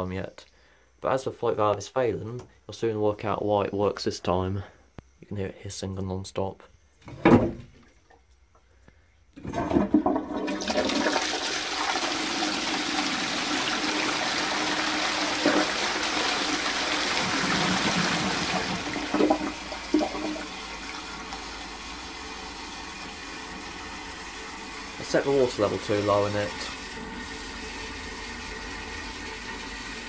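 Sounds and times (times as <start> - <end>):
toilet cistern flushing water: 9.4 - 30.0.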